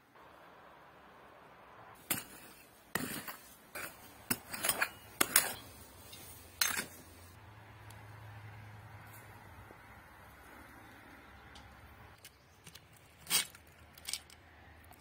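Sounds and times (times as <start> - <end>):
metal rake scraping stony soil: 2.0 - 7.4, 13.0 - 14.4.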